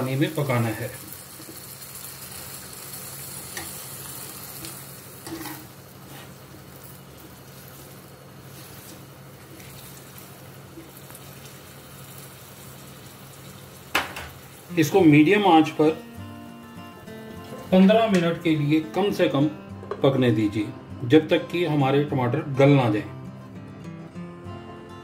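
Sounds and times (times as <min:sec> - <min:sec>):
food sizzling in a pan: 0:00.0 - 0:18.2
metal spoon scraping a pan: 0:05.2 - 0:06.4.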